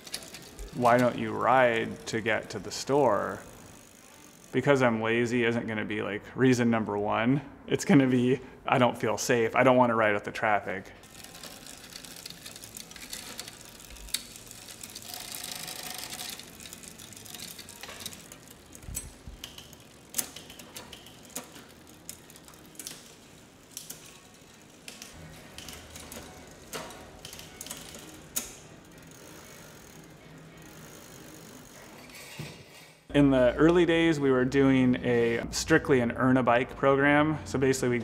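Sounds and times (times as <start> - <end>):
bicycle chain and derailleur clicks: 0.0 - 5.2, 11.0 - 32.4
bicycle freewheel ticking: 0.0 - 5.2, 11.0 - 32.1.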